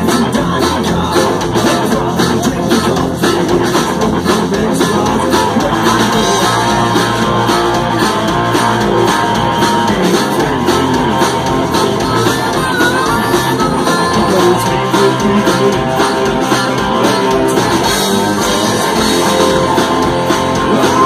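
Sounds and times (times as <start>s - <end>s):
rock band playing: 0.0s - 21.0s
harmonica playing: 11.3s - 15.1s.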